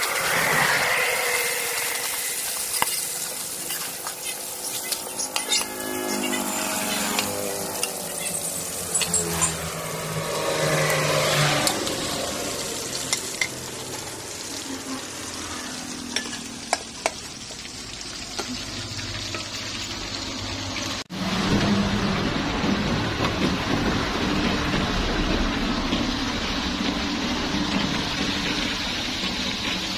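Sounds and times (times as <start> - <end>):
fish sizzling in hot oil: 0.0 - 22.2, 25.1 - 29.9
metal spatula clinking on pan: 2.7 - 6.5.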